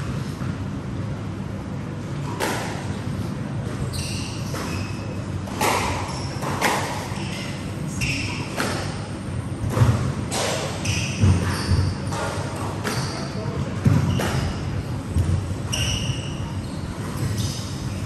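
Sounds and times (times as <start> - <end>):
squash ball hits echoing: 2.4 - 2.9, 5.4 - 7.1, 8.4 - 16.4
sneakers squeaking on wooden floor: 3.7 - 9.0, 9.6 - 18.0.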